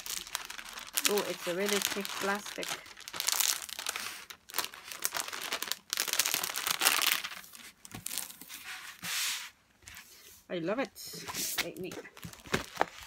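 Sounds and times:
plastic film crinkling: 0.0s - 8.6s, 11.5s - 13.0s.

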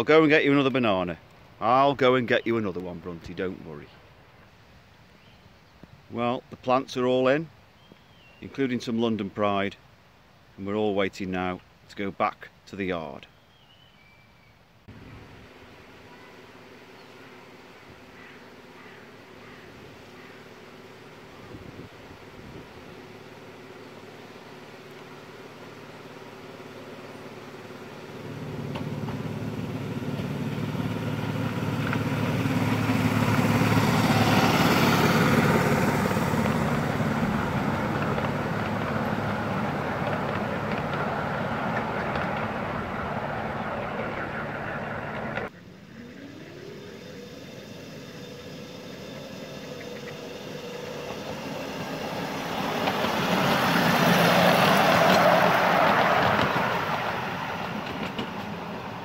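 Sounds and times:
miniature locomotive engine passing: 14.9s - 59.0s.

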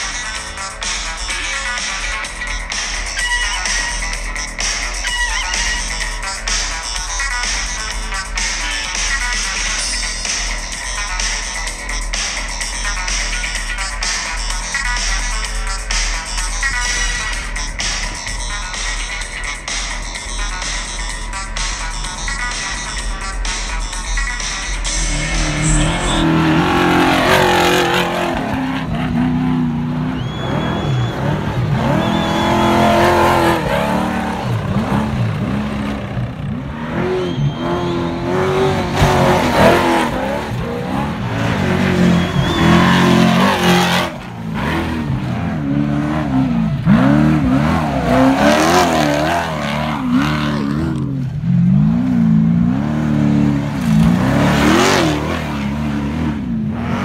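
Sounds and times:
race trucks speeding past: 24.2s - 57.0s.

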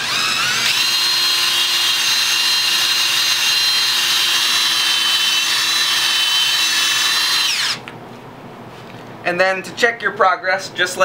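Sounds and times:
drill motor whine with buffing hiss: 0.0s - 7.8s.

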